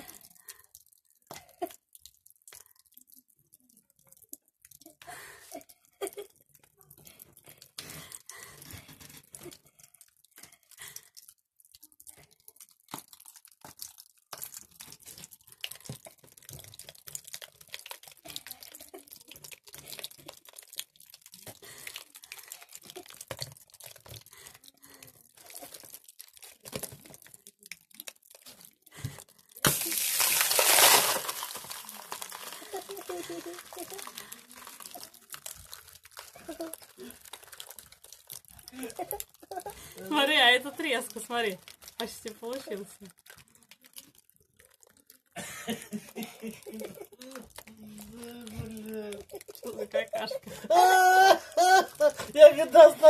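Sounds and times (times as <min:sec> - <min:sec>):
stiff thread ball crackling: 0:11.8 - 0:45.4.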